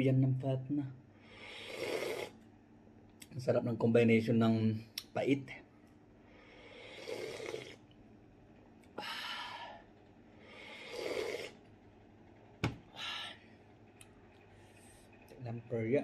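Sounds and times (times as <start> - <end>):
breaths: 1.2 - 1.8, 6.2 - 7.1, 9.0 - 11.0, 12.9 - 13.6
person slurping broth: 6.9 - 7.8, 10.8 - 11.6.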